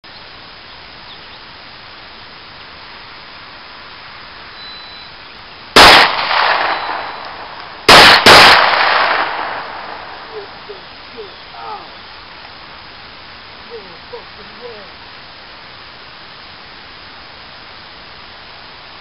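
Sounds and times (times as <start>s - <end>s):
pistol shots with echo: 5.8s - 7.2s, 7.9s - 10.2s.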